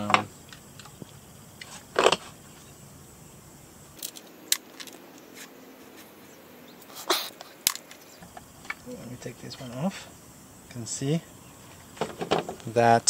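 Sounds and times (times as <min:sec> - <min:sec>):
small metal parts clicking: 0:04.0 - 0:05.0.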